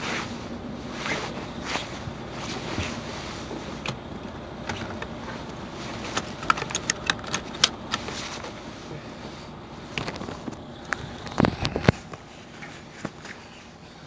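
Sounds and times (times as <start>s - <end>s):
diesel engine idling: 0.0s - 14.0s
sharp clicks: 6.2s - 8.0s.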